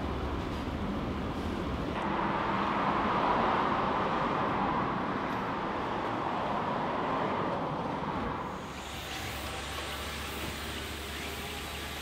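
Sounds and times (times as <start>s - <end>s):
background traffic: 0.0s - 12.0s.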